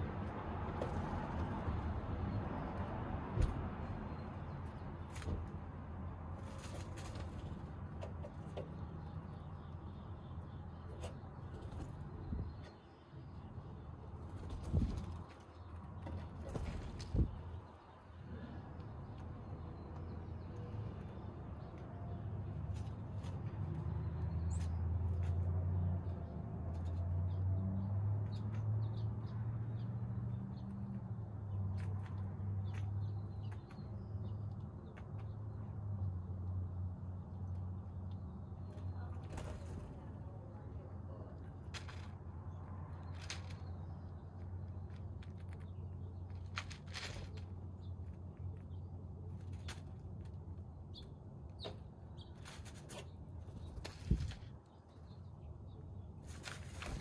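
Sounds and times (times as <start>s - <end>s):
bird scratching in dry leaves: 6.3s - 7.6s, 41.6s - 43.9s, 44.8s - 48.2s, 52.3s - 54.6s, 56.2s - 57.0s
wings fluttering: 56.2s - 57.0s.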